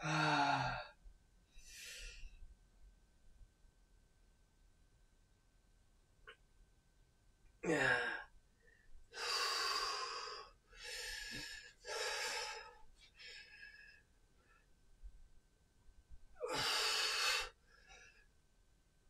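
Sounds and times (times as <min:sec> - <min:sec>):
man sighing: 0:00.0 - 0:00.9, 0:07.6 - 0:08.3
man breathing hard: 0:07.7 - 0:14.1, 0:16.4 - 0:18.1.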